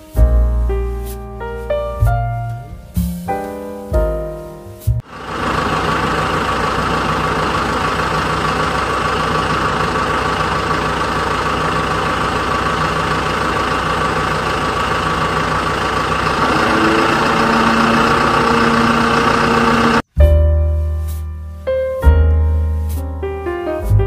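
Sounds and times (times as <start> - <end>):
engine idling: 5.0 - 20.1
higher steady tones: 5.1 - 20.1.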